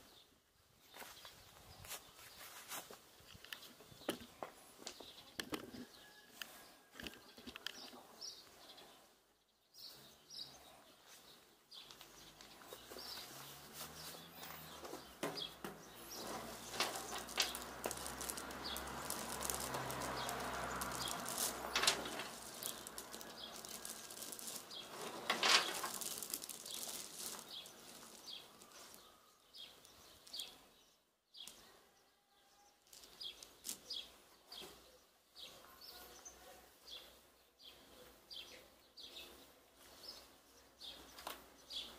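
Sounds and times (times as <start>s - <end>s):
small birds chirping: 0.0s - 41.9s
pellets rustling and clattering: 12.0s - 30.8s, 32.8s - 34.2s.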